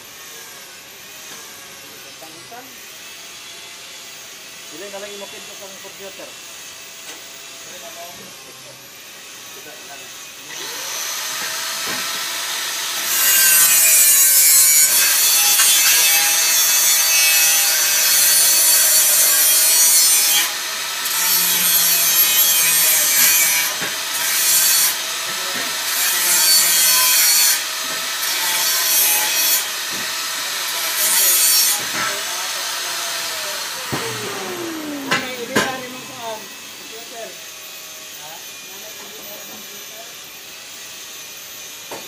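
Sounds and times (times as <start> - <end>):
angle grinder grinding steel: 0.1 - 41.8
grinder motor whine: 10.4 - 13.1, 29.6 - 39.8.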